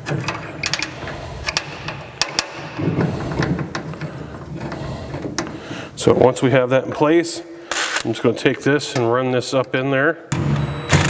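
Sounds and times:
clamp clicks and knocks: 0.0s - 4.1s
rubbing and rattling handling: 0.0s - 6.4s.

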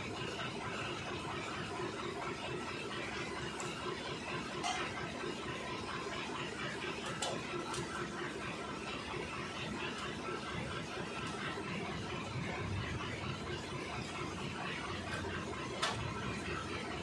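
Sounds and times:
steady background noise: 0.0s - 17.0s.

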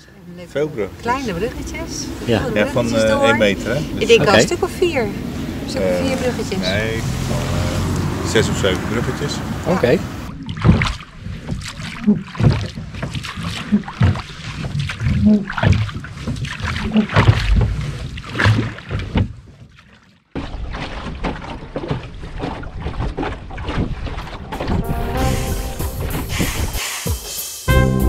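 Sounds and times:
water splashing against hull: 0.5s - 26.8s
wind buffeting microphone: 0.8s - 11.6s.

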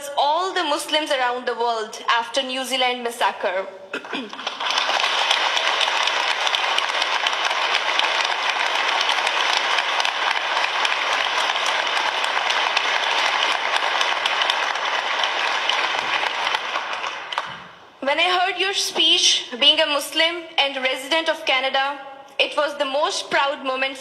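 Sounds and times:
audience applauding: 4.3s - 17.8s.

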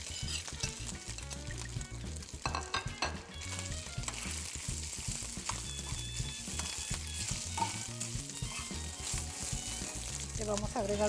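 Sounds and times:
food sizzling in oil: 0.0s - 11.0s
metal spoon clicking on pan: 2.4s - 3.2s.

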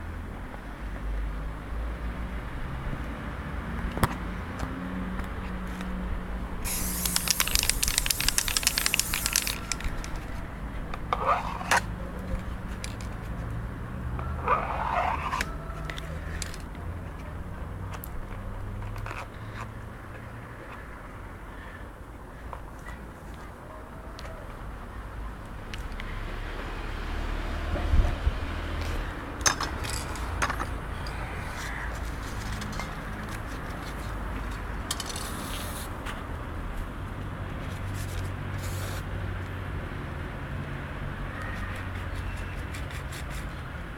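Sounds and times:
spray-paint can hissing: 6.6s - 10.2s, 38.6s - 39.0s
scrapes: 11.1s - 13.5s, 14.2s - 16.7s.

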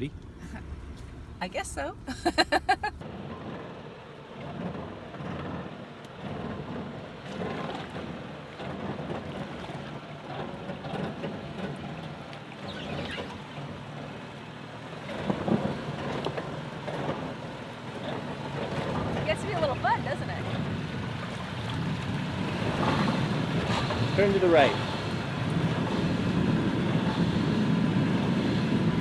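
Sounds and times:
car engine running at low speed: 0.0s - 29.0s
woman laughing: 2.0s - 3.0s
tyres sloshing through mud: 3.0s - 29.0s.

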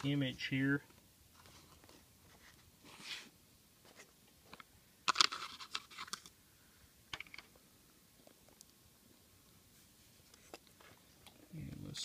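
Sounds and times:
camera handling scrapes and clicks: 5.1s - 6.3s.

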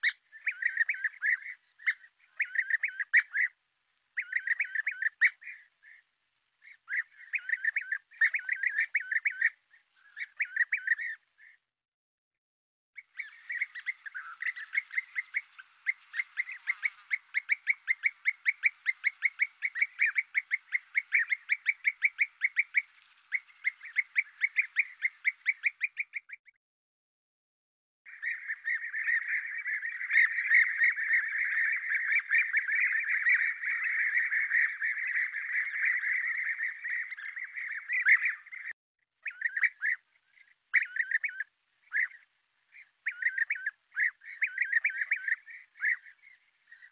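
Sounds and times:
bee-eaters calling: 0.0s - 3.6s, 4.2s - 11.6s, 13.0s - 26.4s, 28.1s - 46.9s.

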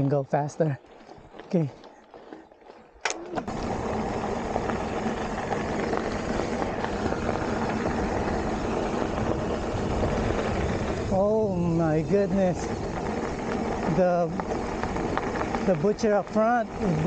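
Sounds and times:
bike tyres rolling on dirt: 0.0s - 17.0s.

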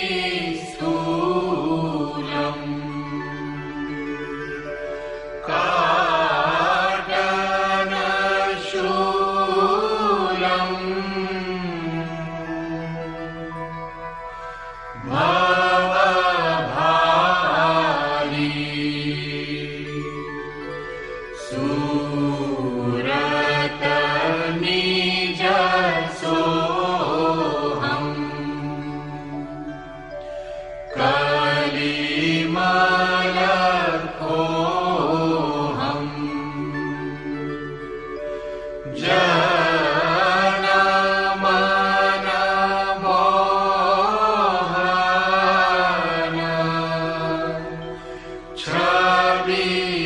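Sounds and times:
person singing a hymn: 0.0s - 13.6s, 14.4s - 20.7s, 21.4s - 29.8s, 30.9s - 37.5s, 38.2s - 50.0s
person chanting long notes: 0.0s - 30.3s, 30.9s - 50.0s
steady held drone: 0.0s - 50.0s.

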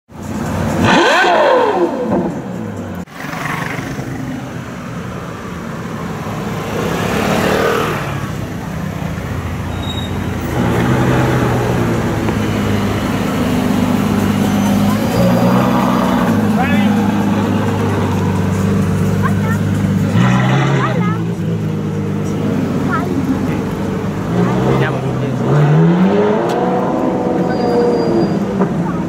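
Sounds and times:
sports car engine revving: 0.3s - 4.4s, 10.4s - 28.8s
vehicle passing by: 5.9s - 9.5s.

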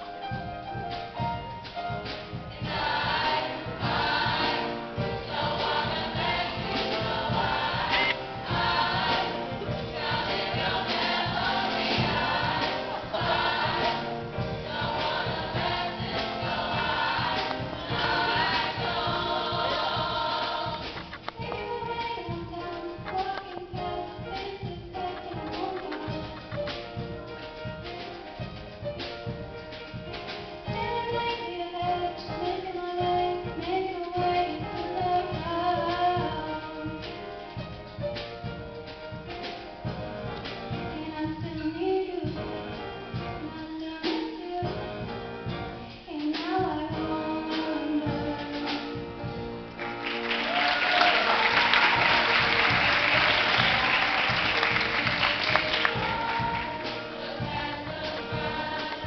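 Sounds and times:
instrumental accompaniment with beat: 0.0s - 59.0s
female choir singing: 2.6s - 20.9s, 55.7s - 59.0s
audience applause: 49.8s - 56.8s.

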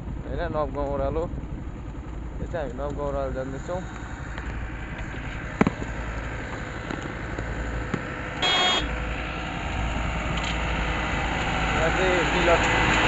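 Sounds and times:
motorcycle engine and road rumble: 0.0s - 13.0s
short horn beep: 8.4s - 8.9s.

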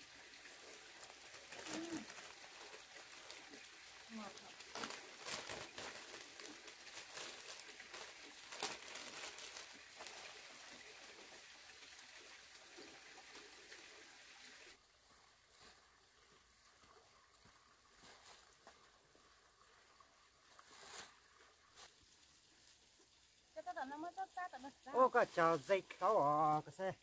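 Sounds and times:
plastic sleeves rustling: 1.3s - 10.4s.

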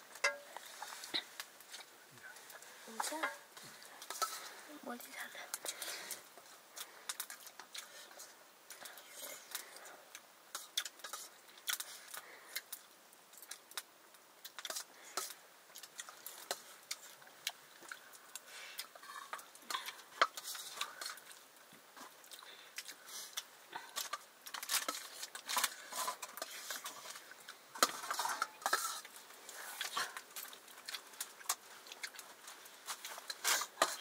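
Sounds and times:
utensils clinking on dishes: 27.8s - 29.1s.

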